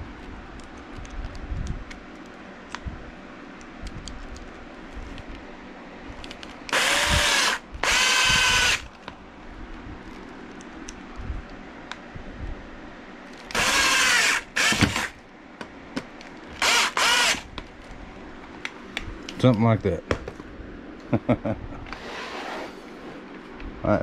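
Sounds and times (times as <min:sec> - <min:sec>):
cordless drill driving a screw: 0:06.7 - 0:08.9, 0:13.5 - 0:15.2, 0:16.6 - 0:17.5.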